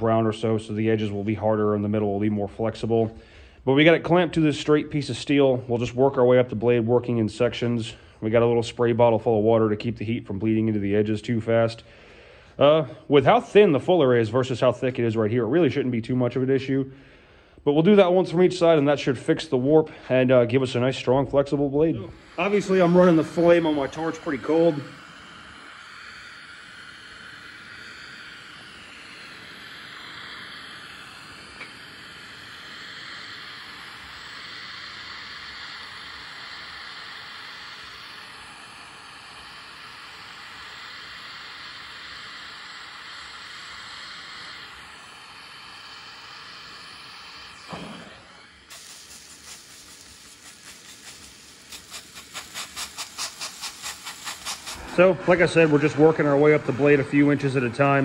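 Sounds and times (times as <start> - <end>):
gas torch flame hissing: 17.6 - 58.0
spray bottle squirting water: 22.2 - 28.8, 48.7 - 55.0.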